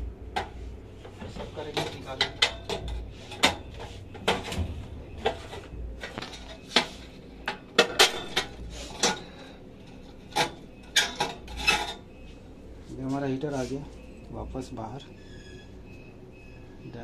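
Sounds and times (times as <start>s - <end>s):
metal clanks and knocks: 6.2s - 9.2s.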